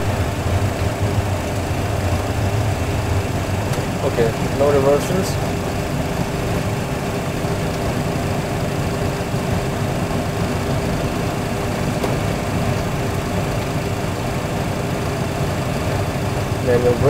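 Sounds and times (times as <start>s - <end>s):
engine and runway rumble: 0.0s - 17.0s
low hum: 0.0s - 17.0s.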